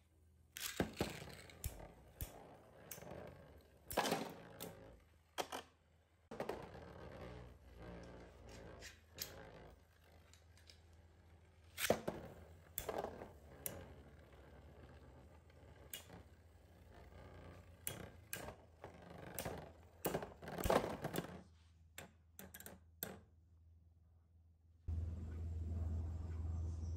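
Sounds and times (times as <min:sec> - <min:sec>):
spinning tops clacking together: 0:00.6 - 0:03.2
low steady hum: 0:24.9 - 0:26.9.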